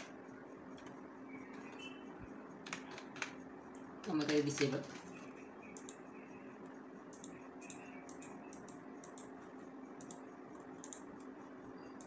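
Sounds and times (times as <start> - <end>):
low steady hum: 0.0 - 12.0
mouse and keyboard clicks: 5.7 - 6.0, 7.1 - 9.3, 10.0 - 10.2, 10.8 - 11.3.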